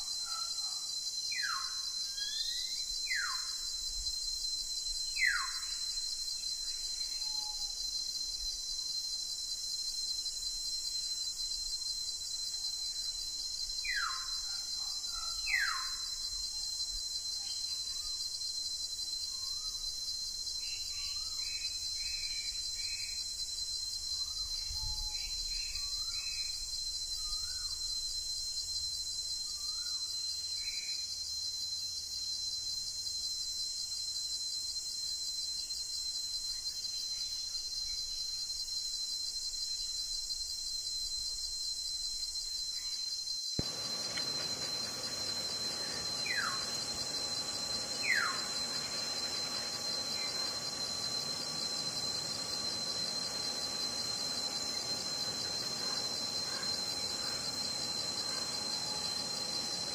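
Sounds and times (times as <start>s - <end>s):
bird whistles sliding down: 43.6s - 59.9s
steady high hiss: 43.6s - 59.9s.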